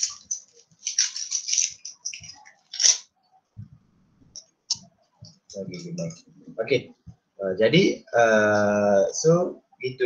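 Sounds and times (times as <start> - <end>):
rustling handling noise: 0.0 - 3.0.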